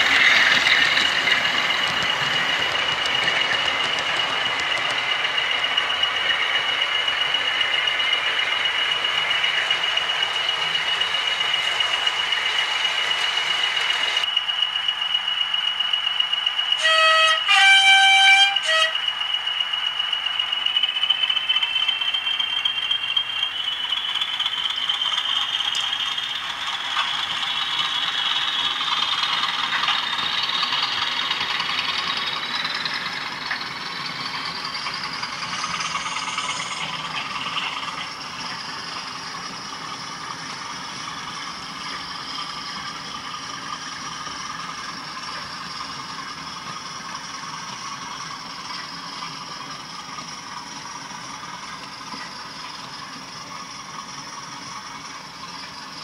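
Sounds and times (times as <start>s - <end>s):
wheels rattling on track: 0.0s - 56.0s
model train motor whine: 16.2s - 56.0s
two-tone diesel horn: 16.8s - 19.0s.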